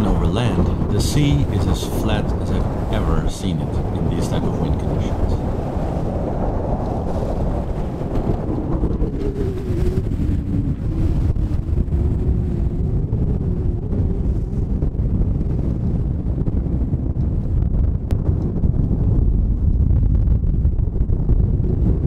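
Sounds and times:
water rushing along hull: 0.0s - 16.3s
wind buffeting microphone: 0.0s - 22.0s.

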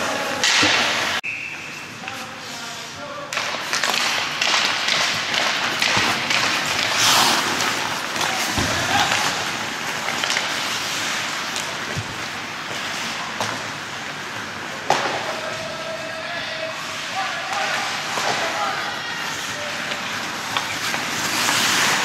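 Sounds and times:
skates scraping ice: 0.0s - 22.0s
sticks clicking on puck: 3.3s - 13.7s, 19.8s - 22.0s.

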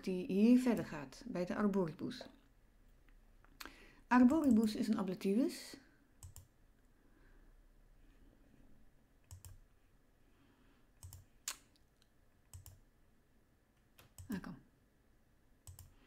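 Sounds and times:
computer mouse clicks: 6.2s - 6.5s, 9.2s - 9.6s, 11.0s - 12.8s, 13.8s - 14.4s, 15.6s - 16.0s.

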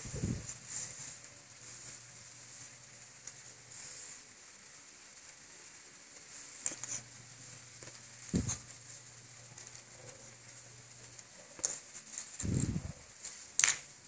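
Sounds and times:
faint hiss: 0.0s - 14.0s
plastic toys clicking and rustling: 9.5s - 14.0s.

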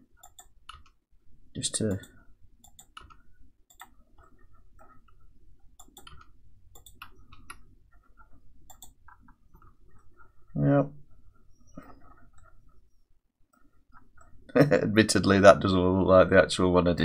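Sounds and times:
mouse and keyboard clicking: 0.2s - 1.0s, 1.9s - 10.4s, 11.5s - 12.8s.

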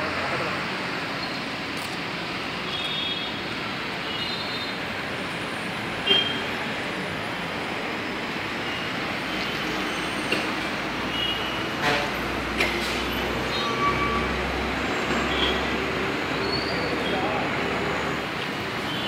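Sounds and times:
street traffic noise: 0.0s - 19.0s.

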